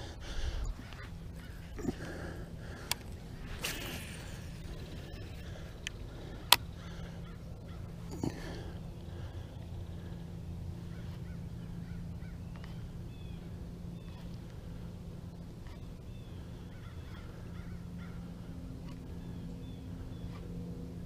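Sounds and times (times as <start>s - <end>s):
birds chirping: 0.0s - 21.0s
steady low hum: 0.0s - 21.0s.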